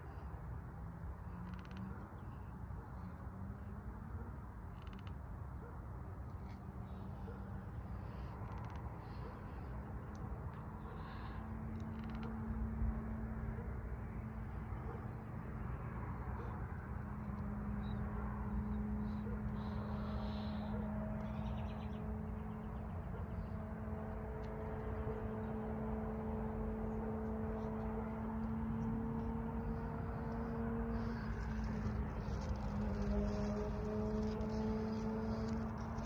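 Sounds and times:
low outdoor rumble: 0.0s - 36.0s.

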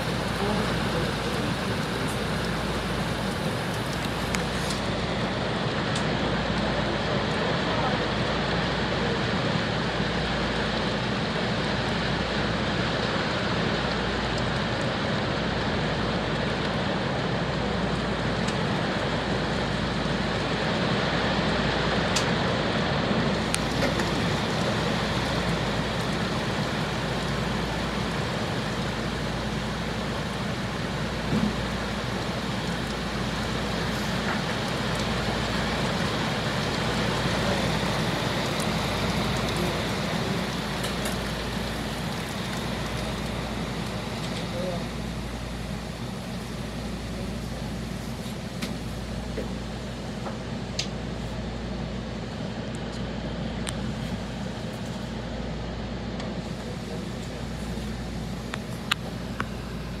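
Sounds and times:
low constant hum: 0.0s - 9.2s, 17.2s - 60.0s
heavy rain pouring: 0.0s - 54.7s, 56.3s - 60.0s.

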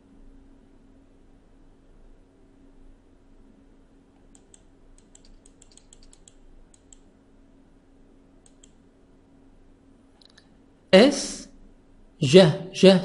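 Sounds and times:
low steady hum: 0.0s - 13.0s
computer mouse clicks: 4.2s - 7.1s, 8.4s - 8.8s.

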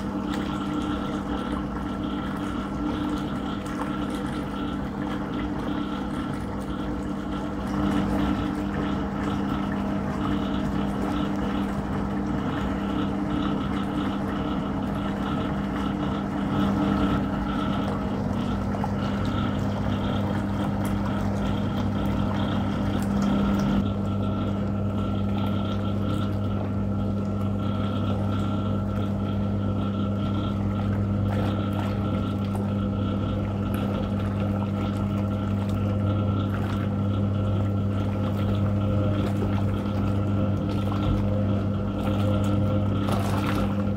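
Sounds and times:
washing machine motor humming: 0.0s - 43.9s
water churning in tub: 0.0s - 43.9s.

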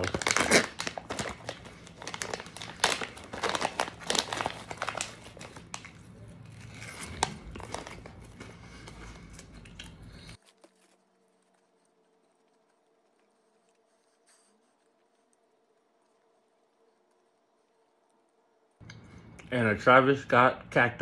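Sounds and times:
plastic snack bag crinkling: 0.0s - 13.8s.

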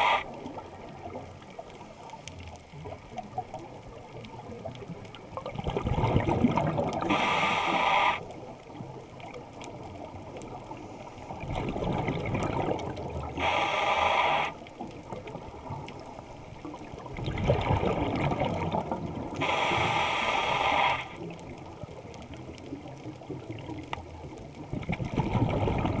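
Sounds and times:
exhaled bubbles gurgling underwater: 0.0s - 26.0s
regulator valve hissing: 19.4s - 21.2s.

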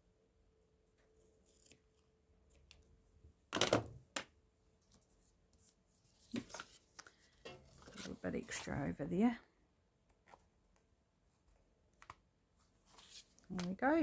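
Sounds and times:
paper handling: 4.9s - 8.6s, 12.0s - 14.0s.

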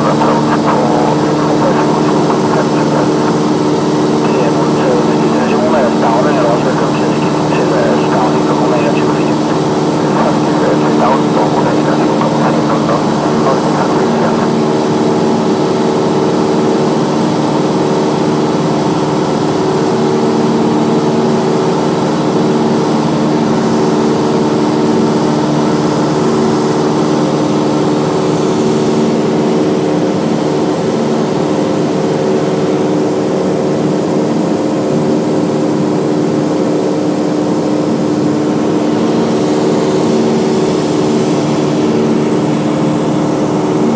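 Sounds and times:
light aircraft engine droning: 0.0s - 15.7s.

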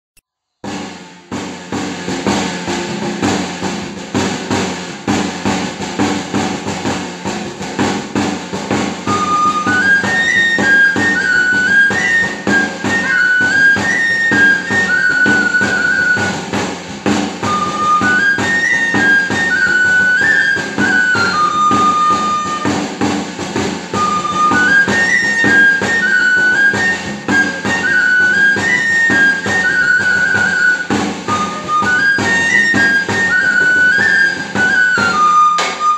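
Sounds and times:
hand drum beating rhythm: 0.7s - 35.9s
high pipe melody: 17.4s - 22.9s, 23.9s - 35.9s.

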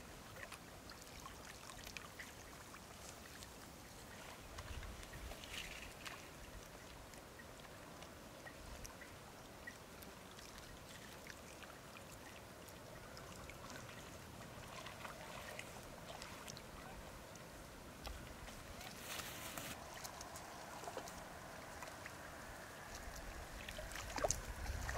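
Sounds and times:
water splashing and dripping: 0.0s - 24.9s.

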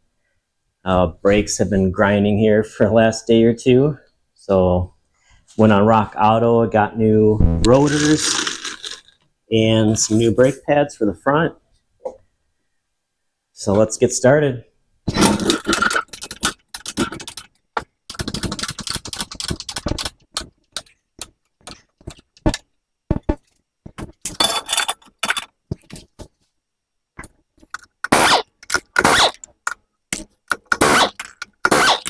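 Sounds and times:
tools clanking and rattling: 24.0s - 26.1s.

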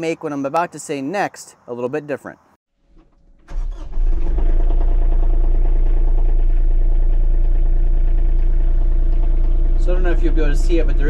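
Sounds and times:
tractor diesel engine starting: 2.8s - 11.0s.

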